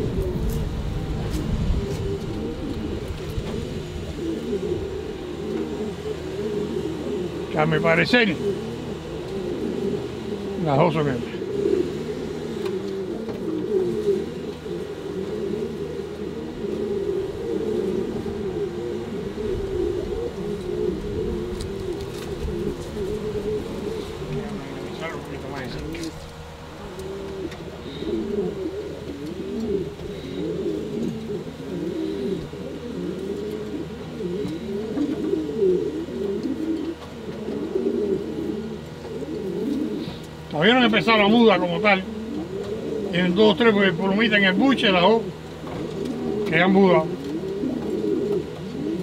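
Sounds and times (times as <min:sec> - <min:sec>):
pigeons cooing: 0:00.0 - 0:49.0.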